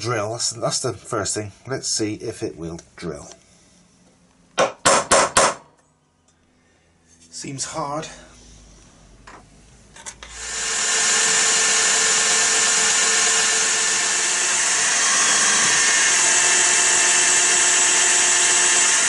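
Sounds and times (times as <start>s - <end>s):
drill bit boring through wood: 10.2s - 19.0s
drill press running: 10.2s - 19.0s.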